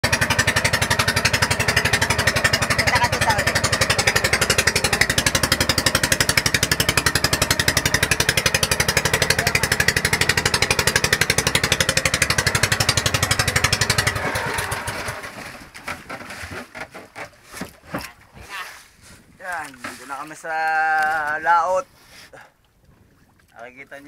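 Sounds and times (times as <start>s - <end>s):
boat engine chugging: 0.0s - 18.1s
water splashing against hull: 0.0s - 24.0s.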